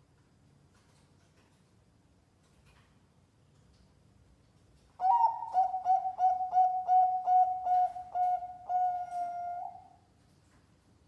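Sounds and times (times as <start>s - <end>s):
dove cooing: 5.0s - 9.9s.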